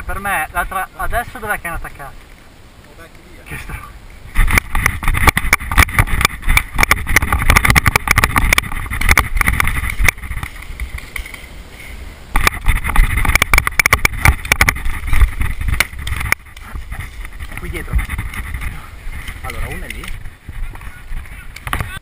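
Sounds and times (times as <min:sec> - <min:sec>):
camera and gear knocking and rattling: 0:04.3 - 0:11.5, 0:12.4 - 0:22.0.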